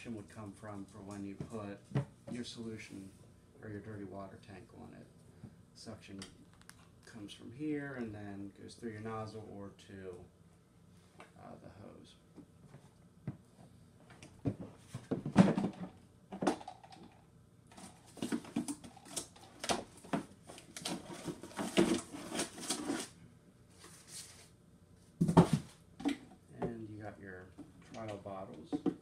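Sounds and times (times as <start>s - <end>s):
cardboard box scraping and rustling: 20.9s - 23.1s.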